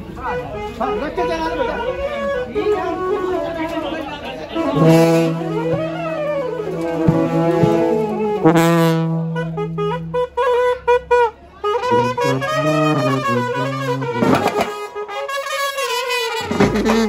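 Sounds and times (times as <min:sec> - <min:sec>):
saxophone playing: 0:00.0 - 0:17.0
street brass band playing: 0:00.0 - 0:17.0
snare drum hits: 0:14.2 - 0:14.8.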